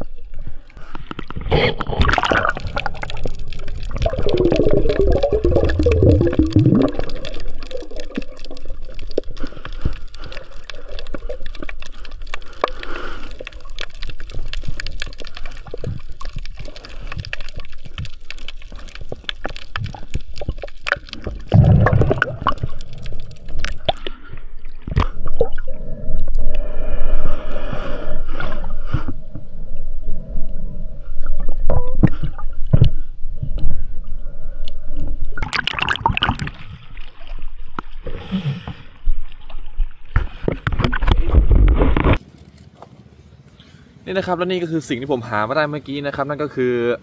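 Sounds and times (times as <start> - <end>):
underwater crackle of fine clicks: 0.8 - 24.2
bubbling gurgles: 1.1 - 26.7, 34.8 - 42.2.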